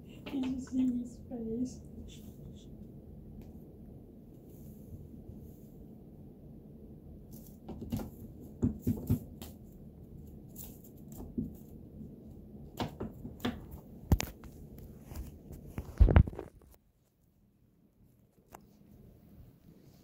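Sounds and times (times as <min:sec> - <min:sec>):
cat claws scratching rope: 0:07.3 - 0:11.8
knocks on cat tree: 0:07.6 - 0:09.4.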